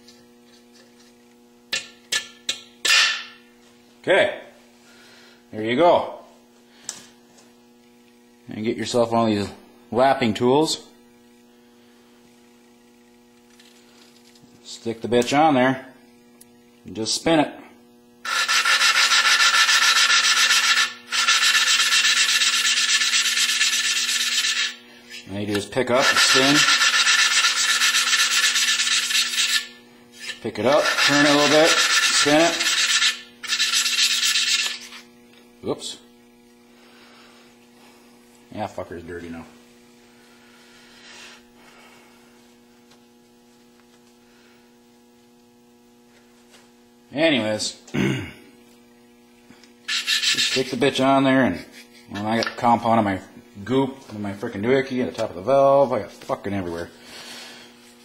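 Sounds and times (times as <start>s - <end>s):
low electrical hum: 0.0s - 58.0s
valve grinding rasp: 18.0s - 35.6s, 49.5s - 52.4s.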